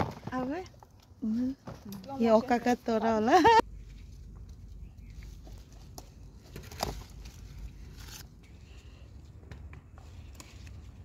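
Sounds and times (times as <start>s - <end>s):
leaves rustling: 2.2s - 9.0s.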